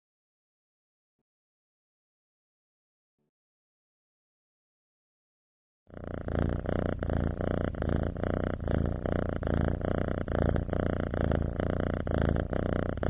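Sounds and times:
cat purring: 5.9 - 13.0.

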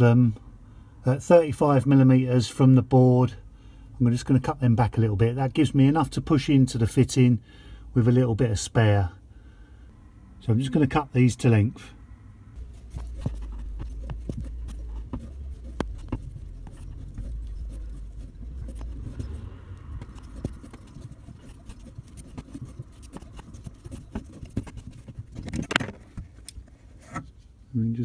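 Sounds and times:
pipe cutter clicking and scraping: 12.8 - 27.3.

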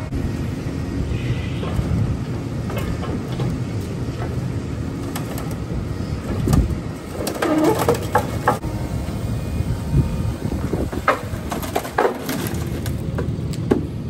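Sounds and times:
diesel engine running: 0.0 - 14.0
metal clanking and knocking: 1.6 - 8.6
creaking metal squeal: 7.3 - 8.1.

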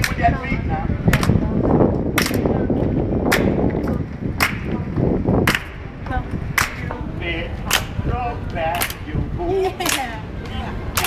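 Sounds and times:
hand claps: 0.0 - 0.2, 1.1 - 1.4, 2.2 - 2.5, 4.4 - 4.8, 5.4 - 5.8, 6.5 - 6.9, 7.7 - 7.9, 8.7 - 9.0, 9.8 - 10.1.

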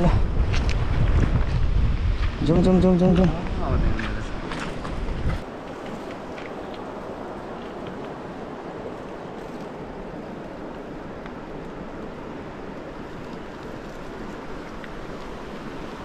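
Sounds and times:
river water flowing: 4.3 - 16.0.

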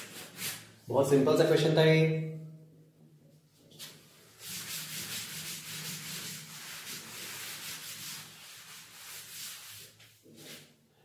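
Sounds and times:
duster rubbing chalkboard: 3.8 - 10.7.

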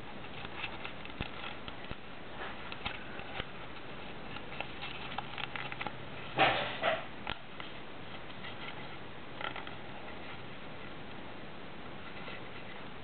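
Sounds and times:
paper rustling and crackling: 0.1 - 6.8.

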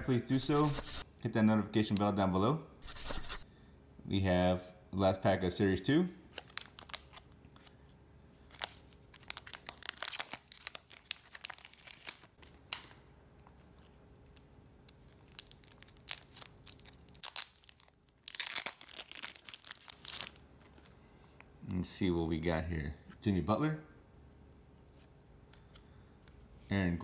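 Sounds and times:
cellophane crinkling: 6.3 - 7.4, 8.4 - 12.8, 13.6 - 20.9
foil pack tearing: 8.6 - 12.3, 15.2 - 20.4.

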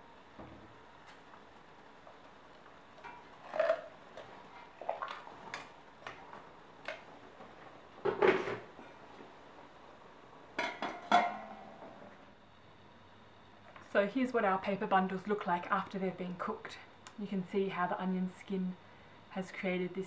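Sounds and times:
pot lid clanking: 10.6 - 11.6.

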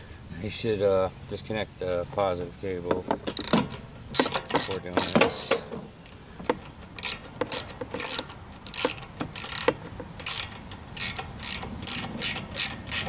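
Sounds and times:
ratchet wrench clicking: 3.2 - 13.0.

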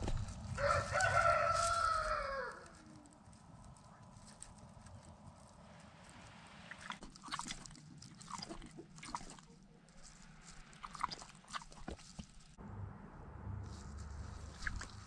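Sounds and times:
pig moving on straw: 0.0 - 7.0, 13.6 - 15.0
crunching and rustling: 0.0 - 12.6, 13.6 - 15.0.

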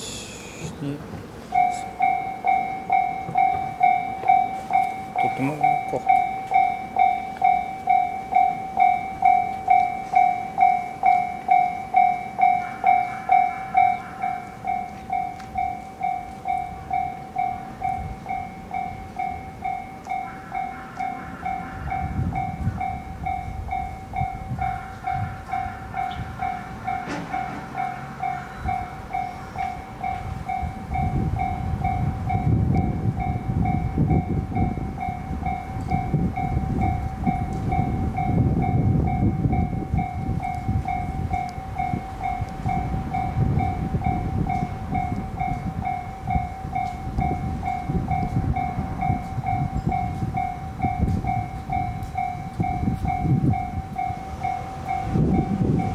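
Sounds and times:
low rumble of approaching train: 0.0 - 55.9
level crossing warning bell: 1.4 - 55.9.

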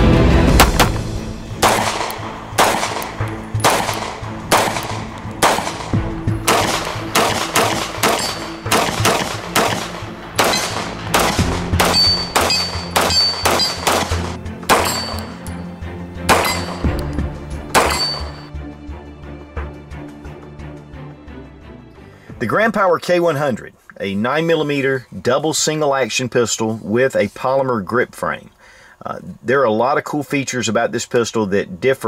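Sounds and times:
background music: 0.0 - 25.8
pistol shots: 0.6 - 15.5, 16.2 - 17.0, 17.7 - 18.5.

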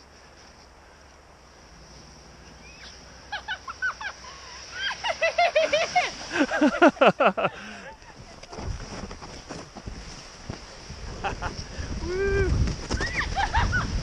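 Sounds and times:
woman laughing and squealing: 2.6 - 8.6, 11.2 - 14.0.

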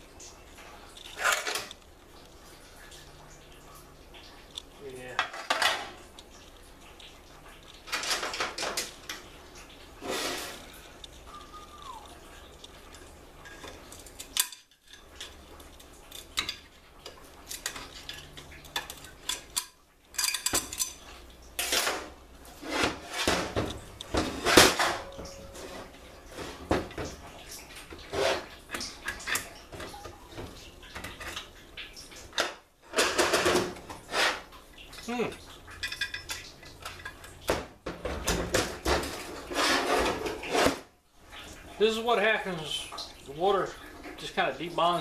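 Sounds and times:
metallic clinks and clanks: 17.5 - 22.0.

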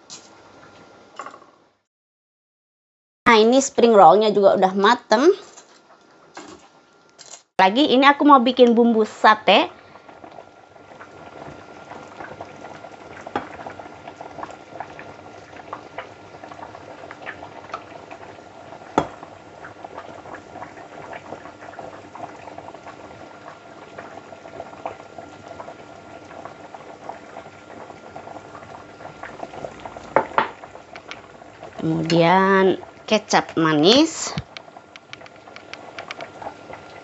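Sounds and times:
soup bubbling and popping: 9.7 - 37.0.

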